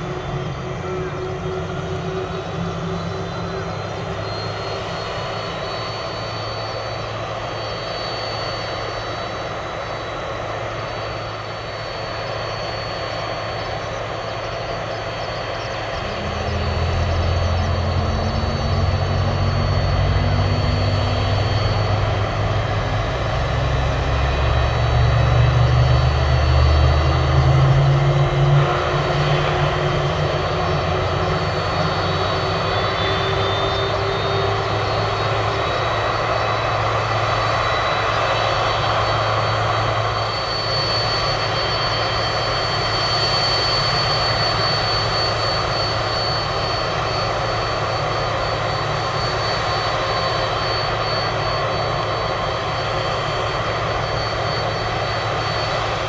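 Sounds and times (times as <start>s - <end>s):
jet engines high whine: 0.0s - 56.0s
deep rumble: 15.8s - 40.0s.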